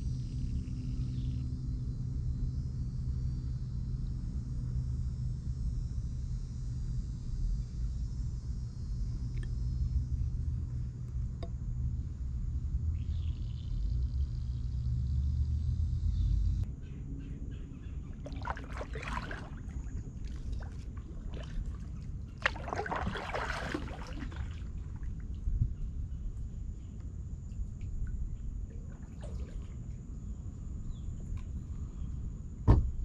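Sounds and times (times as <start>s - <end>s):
kayak paddle splashing in water: 18.2s - 25.4s, 28.8s - 29.8s.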